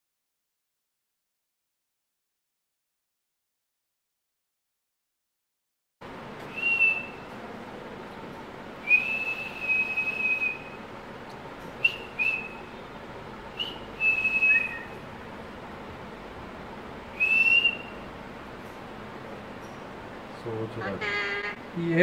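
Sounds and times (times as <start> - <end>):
whistled notes: 6.5 - 7.3, 8.8 - 10.8, 11.8 - 12.8, 13.6 - 15.0, 17.2 - 18.0.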